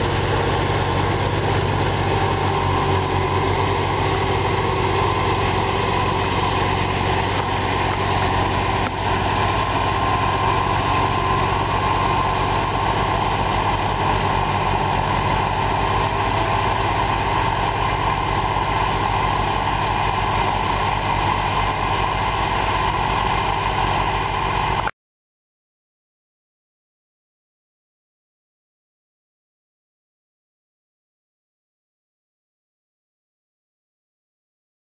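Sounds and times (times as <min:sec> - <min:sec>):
tractor diesel engines running: 0:00.0 - 0:24.9.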